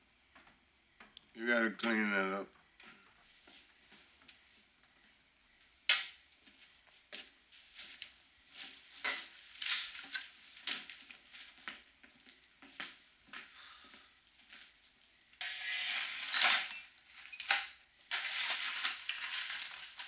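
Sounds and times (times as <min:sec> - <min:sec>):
broom sweeping on tiled floor: 0:07.5 - 0:11.7, 0:15.4 - 0:17.4
broken glass clinking: 0:16.0 - 0:20.0.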